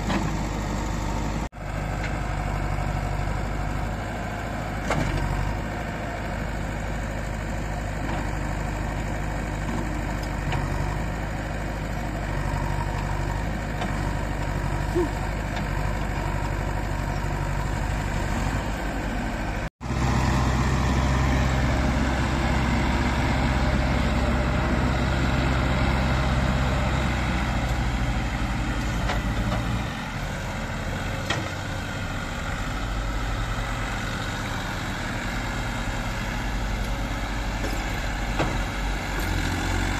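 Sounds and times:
diesel engine running: 0:00.0 - 0:39.9
backhoe digging sandy soil: 0:19.9 - 0:39.9.

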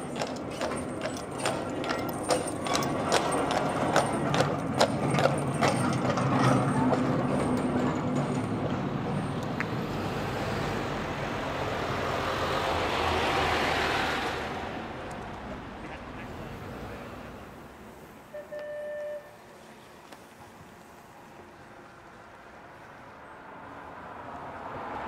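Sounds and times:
horse hooves clip-clopping on road: 0:00.0 - 0:09.9
vehicle passing: 0:08.2 - 0:18.3, 0:20.6 - 0:25.0.

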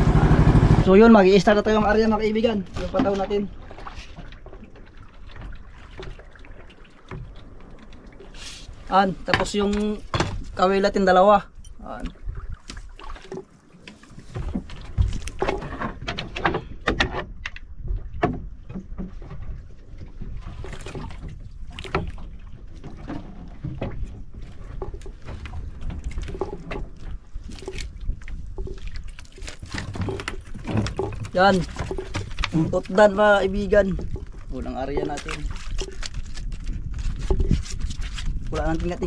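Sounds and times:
water lapping against boat hull: 0:00.0 - 0:39.0
fishing gear knocking and rustling: 0:09.2 - 0:10.7, 0:12.5 - 0:39.0.

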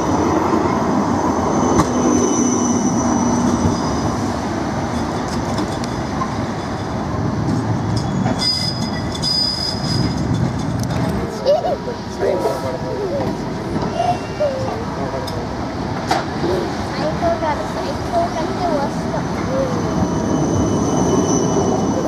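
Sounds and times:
tram wheels rumbling on rails: 0:00.0 - 0:22.0
high wheel squeal: 0:01.2 - 0:04.3, 0:08.0 - 0:10.2, 0:13.6 - 0:14.9, 0:19.4 - 0:22.0.

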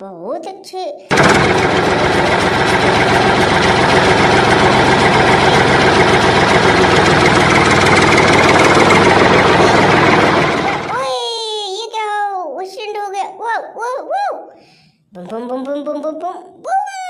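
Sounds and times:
heavy engine idling: 0:01.1 - 0:10.9.

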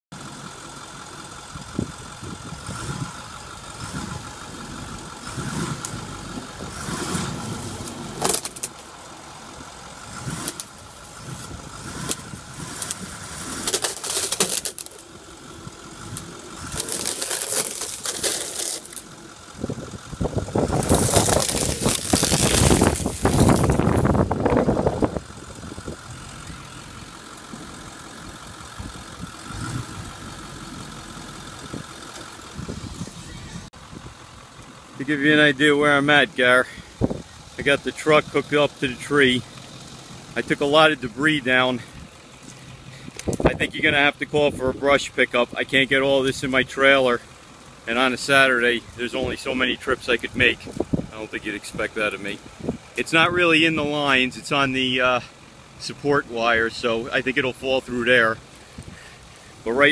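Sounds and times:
truck engine running: 0:00.1 - 0:59.9
crunching and scraping: 0:05.2 - 0:09.2, 0:10.0 - 0:28.0, 0:37.6 - 0:44.4, 0:47.9 - 0:59.9
wooden fence cracking and clattering: 0:08.2 - 0:08.9, 0:12.9 - 0:15.1, 0:16.2 - 0:19.1, 0:20.7 - 0:24.1.

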